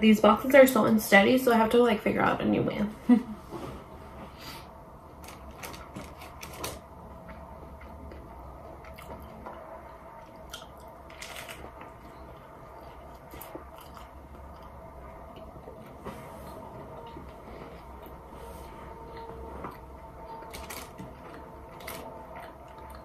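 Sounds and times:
soft chewing: 7.2 - 23.0
crunching taco shell: 10.3 - 14.7, 20.4 - 23.0.

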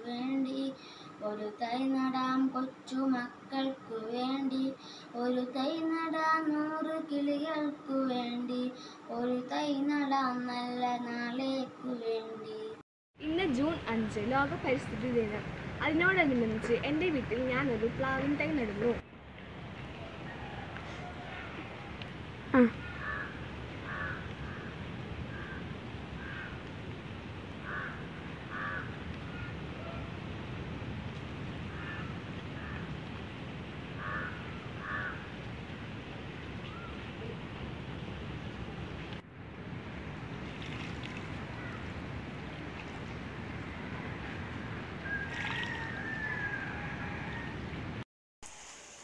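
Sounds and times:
low background noise: 0.0 - 47.8
crow cawing: 22.8 - 24.7, 25.3 - 25.6, 26.2 - 26.6, 27.6 - 29.5, 31.7 - 32.9, 34.0 - 35.2, 41.6 - 41.9
water splashing onto soil: 40.3 - 43.6, 45.2 - 45.9.

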